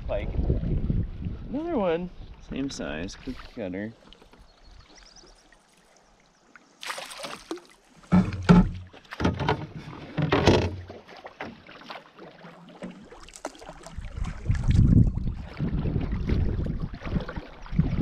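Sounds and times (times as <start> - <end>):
fish splashing at surface: 6.8 - 8.2, 10.0 - 14.8.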